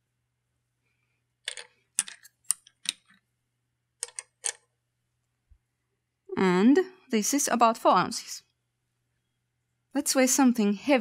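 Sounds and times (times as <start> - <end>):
dominoes clacking: 1.5 - 3.0.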